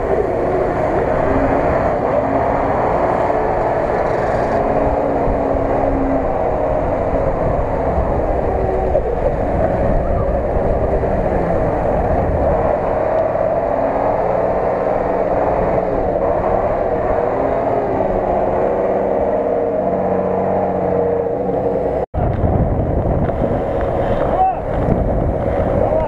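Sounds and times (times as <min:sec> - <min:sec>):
truck engine rumbling under load: 0:00.0 - 0:26.0.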